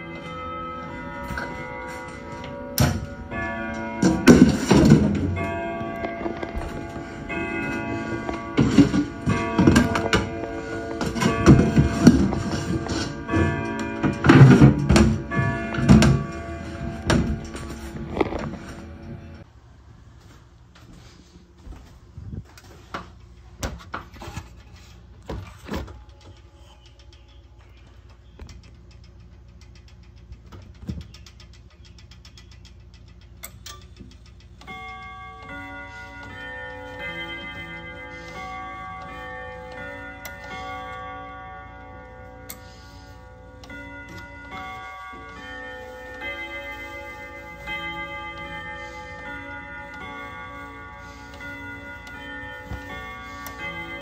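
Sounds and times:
clock chiming a melody: 0.0s - 19.5s, 25.5s - 54.0s
clicks and knocks: 1.2s - 19.4s.

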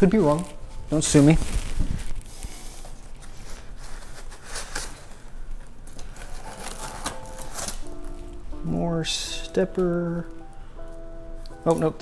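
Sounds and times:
packaging rustling and crinkling: 0.0s - 8.6s.

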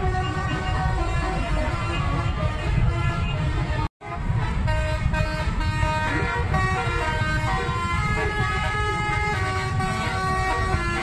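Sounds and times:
bus horn playing a tune: 0.0s - 11.0s
low traffic rumble: 0.0s - 11.0s.

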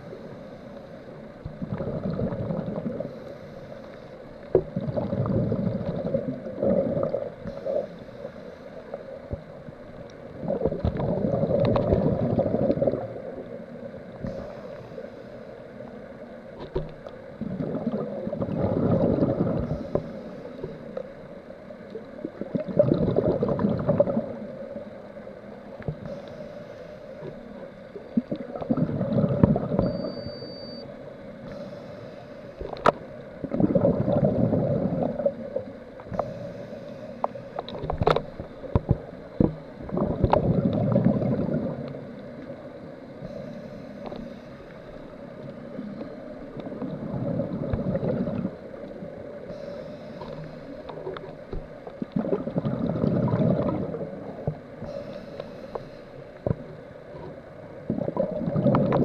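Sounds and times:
underwater exhalation bubbles gurgling: 1.5s - 3.2s, 4.5s - 7.9s, 10.3s - 13.6s, 17.4s - 20.1s, 22.2s - 24.8s, 28.1s - 30.2s, 32.7s - 36.3s, 37.7s - 42.2s, 45.7s - 49.5s, 50.2s - 54.6s, 56.5s - 59.0s.

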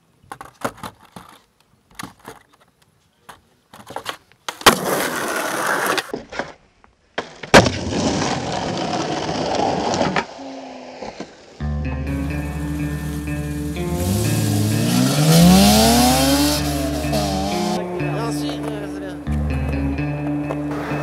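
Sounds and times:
skateboard taps and scuffs: 0.0s - 6.6s
skateboard wheels rolling on asphalt: 0.0s - 17.7s
skateboard landing slap: 3.8s - 5.3s, 7.2s - 8.6s
skateboard grinding along wood: 3.8s - 6.6s, 7.2s - 11.6s.

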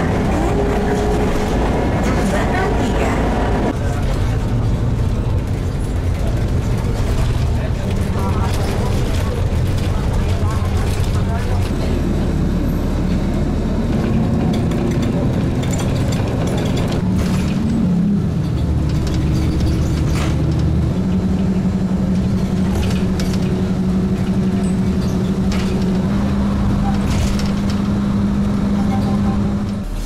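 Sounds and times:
bus engine: 0.0s - 30.0s
road noise: 0.0s - 30.0s
clicks and rattles: 18.4s - 26.2s.

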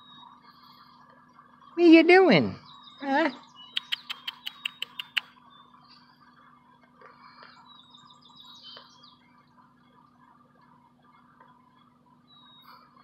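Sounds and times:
bird chirps: 0.0s - 10.1s, 11.0s - 13.0s
steady low hum: 0.0s - 13.0s
rapid sharp clicks: 3.8s - 5.3s.

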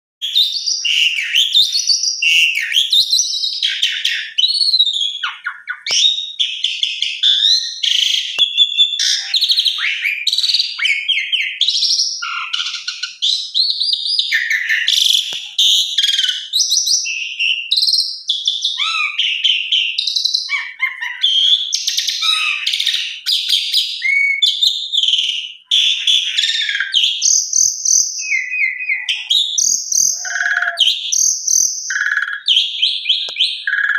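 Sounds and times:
starling singing: 0.2s - 33.9s.

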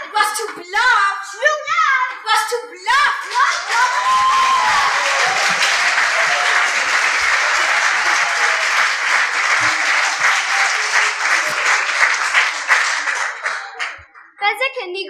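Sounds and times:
audience applauding: 2.9s - 14.4s.

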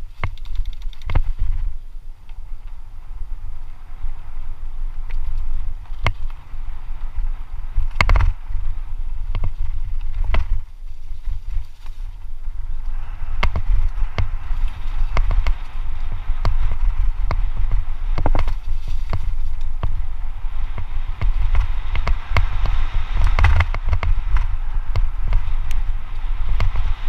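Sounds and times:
bike clacking and rattling: 0.0s - 2.8s, 5.0s - 27.0s
wind buffeting the microphone: 0.0s - 27.0s.

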